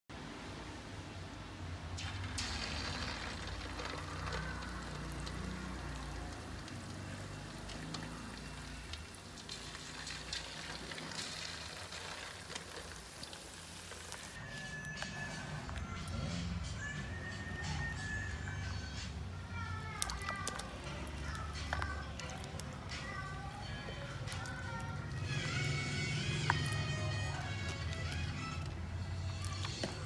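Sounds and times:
chicken frying in hot oil: 0:02.0 - 0:14.4, 0:19.5 - 0:30.0.

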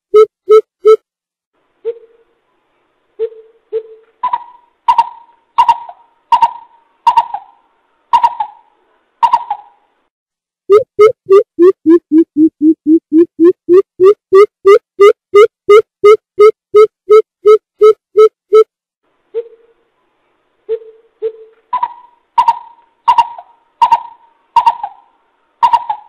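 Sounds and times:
coucal calling: 0:20.7 - 0:26.0.

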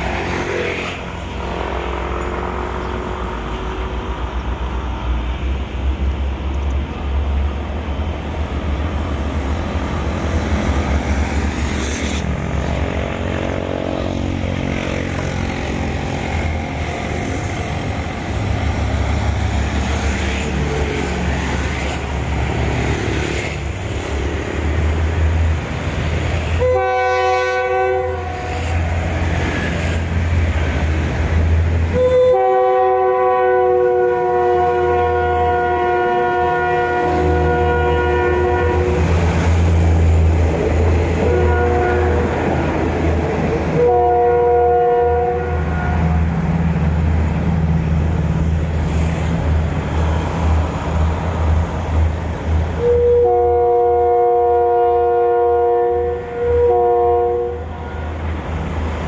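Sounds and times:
diesel train engine rumbling: 0:00.0 - 0:59.0
train horn blasts: 0:26.5 - 0:28.8, 0:31.9 - 0:39.1, 0:41.2 - 0:42.5, 0:43.7 - 0:46.2, 0:52.8 - 0:58.2.

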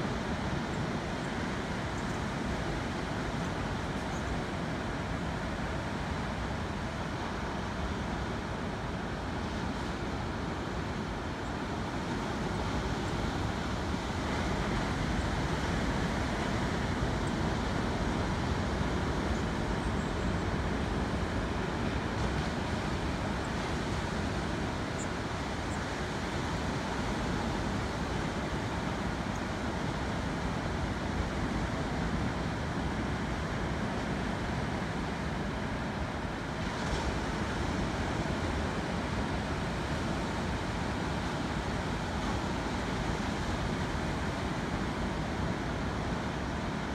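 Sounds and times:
surf washing on rocky shore: 0:00.1 - 0:46.9.

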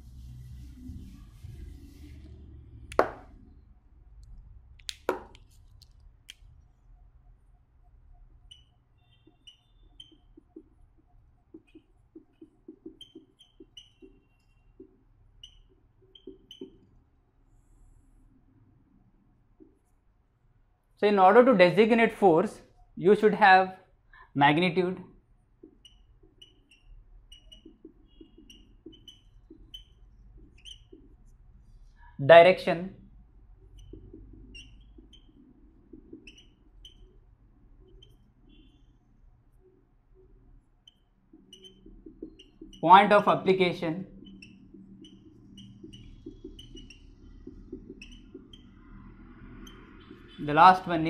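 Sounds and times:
marker squeaking on whiteboard: 0:00.4 - 0:03.6, 0:05.1 - 0:06.9, 0:07.5 - 0:18.7, 0:19.5 - 0:20.0, 0:25.4 - 0:51.0
marker tip scratching: 0:02.9 - 0:03.3, 0:04.8 - 0:06.5, 0:08.5 - 0:16.9, 0:25.6 - 0:31.9, 0:33.6 - 0:50.4.

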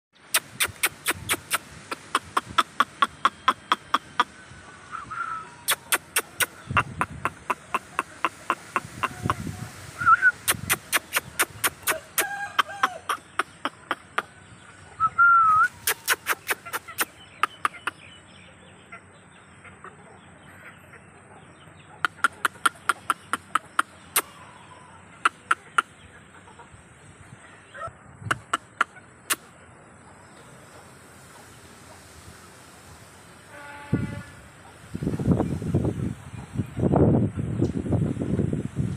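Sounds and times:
chickens clucking and calling: 0:00.3 - 0:33.2
sharp evenly spaced clicks: 0:10.5 - 0:12.3.

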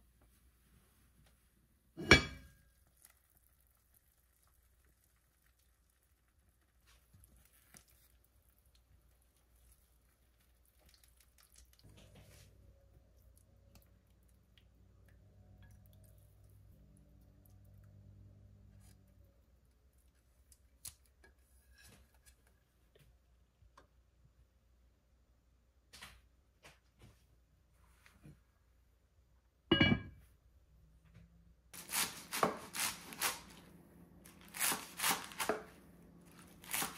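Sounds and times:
faint low hum: 0:00.0 - 0:21.5
spatula clicks and wet sounds: 0:02.7 - 0:12.0, 0:13.1 - 0:21.4.

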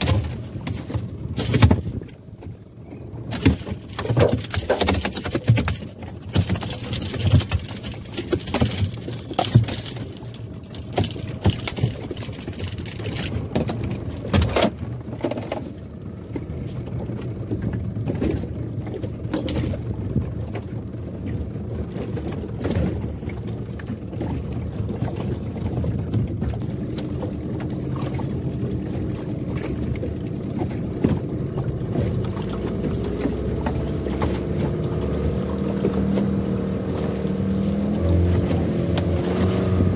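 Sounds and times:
outboard motor running: 0:00.0 - 0:39.9
knocks and rattles: 0:03.3 - 0:15.7.

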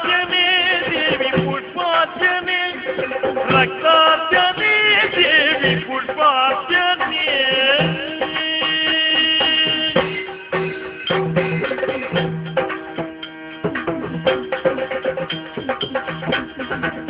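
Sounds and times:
person singing: 0:00.0 - 0:12.3
hand drums beating: 0:00.0 - 0:17.0
held melodic notes: 0:00.0 - 0:17.0.

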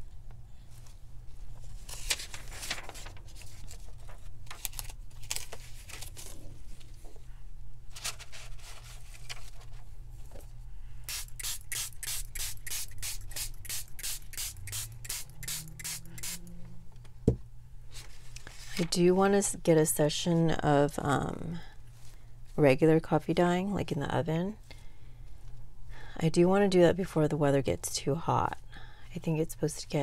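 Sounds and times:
spray bottle spraying: 0:11.1 - 0:16.4.

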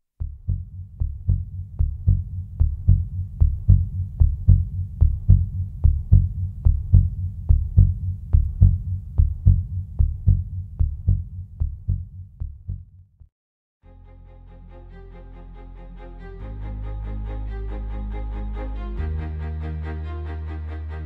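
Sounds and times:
heartbeat double thumps: 0:00.2 - 0:13.3.

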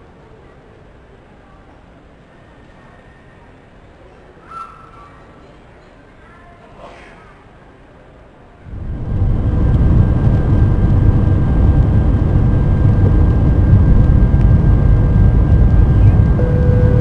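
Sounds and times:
jet engine rumble in cabin: 0:08.6 - 0:17.0
jet engine whine: 0:08.6 - 0:17.0.

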